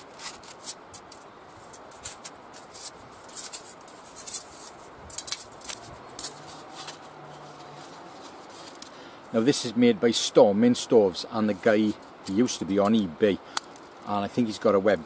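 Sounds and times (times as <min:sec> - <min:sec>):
sheet metal clicking and scraping: 0:00.0 - 0:08.9.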